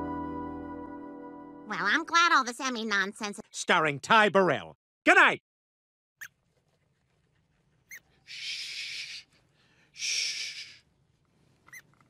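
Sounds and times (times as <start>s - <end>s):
rubber chicken wheezing: 7.9s - 10.9s.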